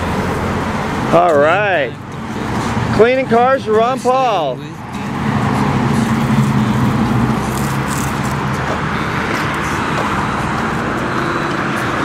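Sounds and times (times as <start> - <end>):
street traffic noise: 0.0 - 12.0
low engine hum: 4.6 - 12.0.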